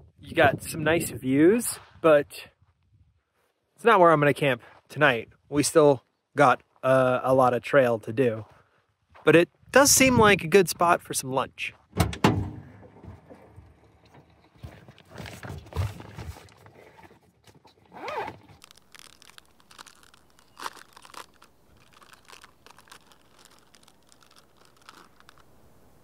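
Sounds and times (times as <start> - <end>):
plastic packaging crinkling: 18.5 - 26.0.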